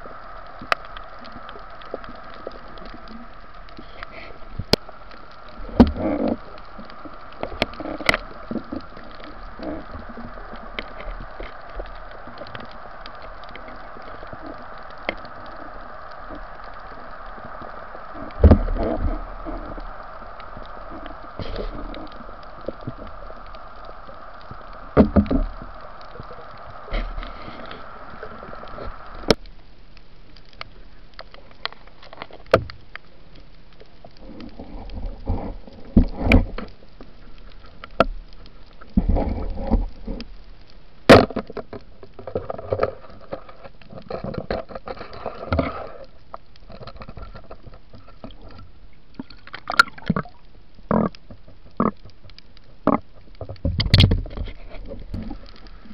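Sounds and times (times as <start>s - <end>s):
steady hum: 0.0s - 43.6s
underwater gurgling and bubbling: 0.0s - 55.9s
sharp clicks and knocks: 49.2s - 55.7s.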